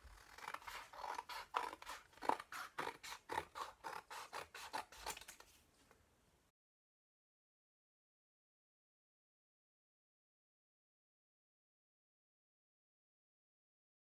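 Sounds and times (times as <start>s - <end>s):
scissors snipping cardboard: 0.0s - 5.4s.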